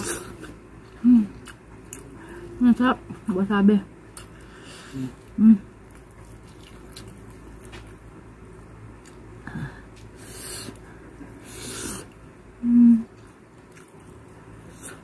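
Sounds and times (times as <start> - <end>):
breathy eating sounds: 0.0 - 2.6, 4.1 - 7.9, 8.9 - 15.0
loud steady hummed tone: 0.0 - 15.0.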